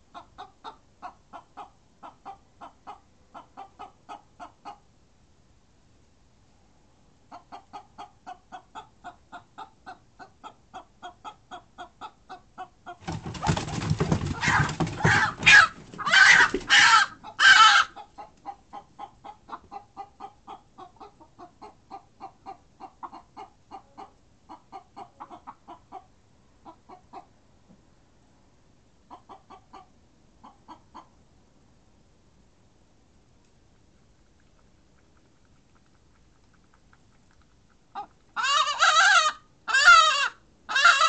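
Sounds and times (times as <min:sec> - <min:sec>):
hens alarm clucking: 0:07.3 - 0:27.3, 0:37.9 - 0:41.0.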